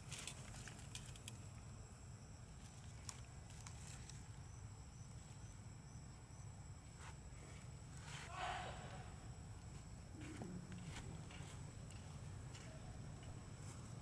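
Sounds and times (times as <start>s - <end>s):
rustle: 6.8s - 12.0s.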